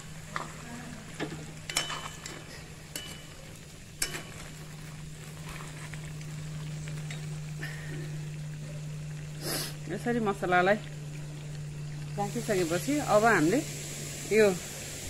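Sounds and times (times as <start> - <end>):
meat sizzling in oil: 0.0 - 15.0.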